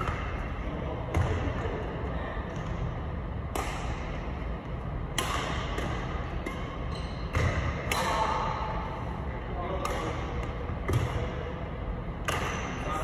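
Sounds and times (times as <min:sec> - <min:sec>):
steady low hum: 0:00.0 - 0:13.0
rackets striking shuttlecock: 0:03.5 - 0:08.9, 0:09.7 - 0:11.5, 0:12.2 - 0:12.8.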